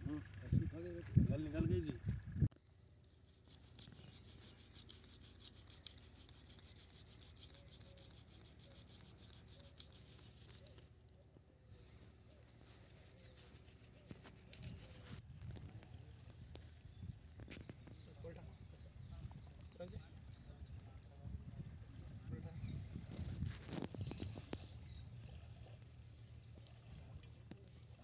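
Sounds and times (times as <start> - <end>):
knife scraping fish scales: 3.2 - 10.9, 12.2 - 15.2.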